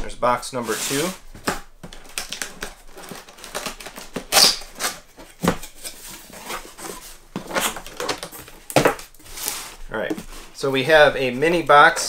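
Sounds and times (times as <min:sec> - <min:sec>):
cardboard ripping: 0:00.7 - 0:10.4
cardboard box being opened: 0:02.3 - 0:10.6.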